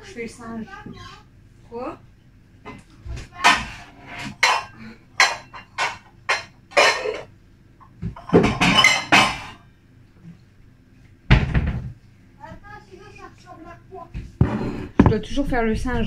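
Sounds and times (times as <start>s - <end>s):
dishes and utensils clattering: 2.7s - 7.3s, 8.0s - 9.6s.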